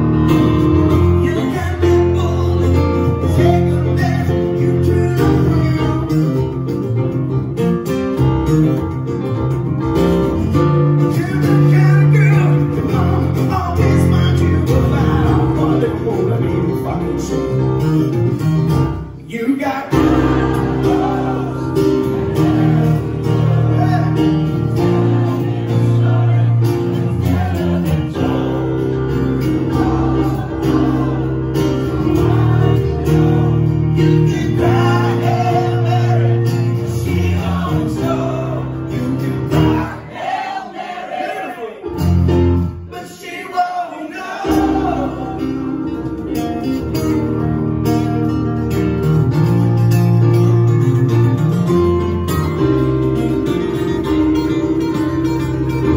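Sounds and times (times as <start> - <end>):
strummed acoustic guitar: 0.0 - 40.5, 44.3 - 55.9
piano: 0.0 - 55.9
man singing: 0.6 - 6.8, 10.4 - 18.2, 19.2 - 25.1, 32.2 - 40.1, 42.9 - 47.1.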